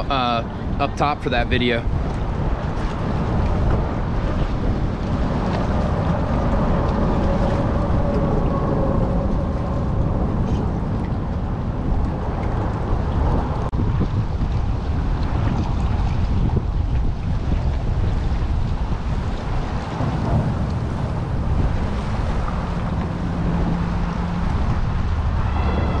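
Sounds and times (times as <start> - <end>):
water current rushing: 0.0 - 26.0
wind buffeting microphone: 0.0 - 26.0
faint hum: 20.5 - 26.0.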